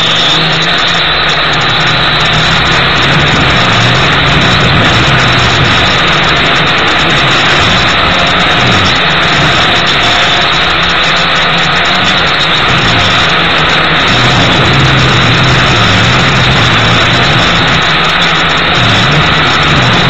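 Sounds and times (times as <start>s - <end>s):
drone motors whirring: 0.0s - 20.0s.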